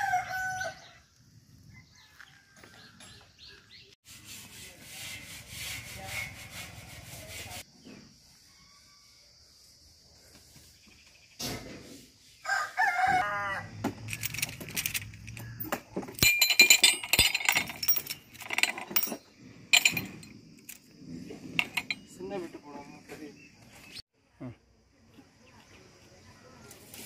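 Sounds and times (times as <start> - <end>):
rooster crowing: 0.0 - 1.0, 1.7 - 3.1, 8.4 - 9.3, 12.4 - 13.9
metal bolts clinking: 14.0 - 20.9, 21.5 - 22.1.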